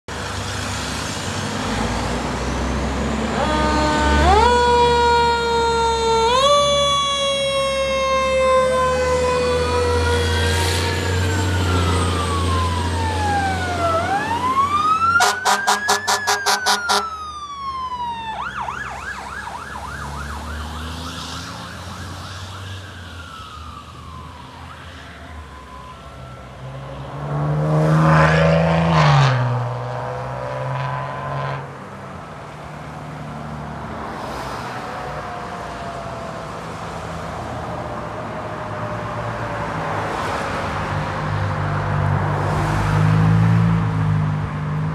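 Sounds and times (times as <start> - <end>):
heavy truck engine: 0.1 - 17.6
fire truck sirens: 0.1 - 44.9.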